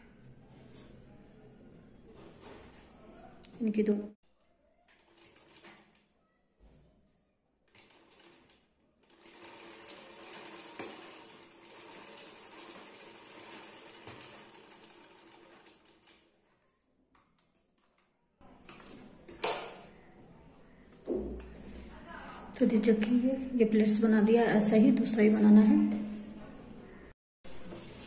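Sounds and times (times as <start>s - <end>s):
sewing machine running: 7.7s - 16.2s.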